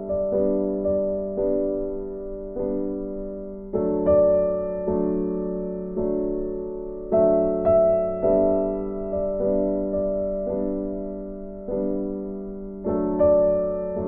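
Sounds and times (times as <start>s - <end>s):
slow piano music: 0.0s - 14.0s.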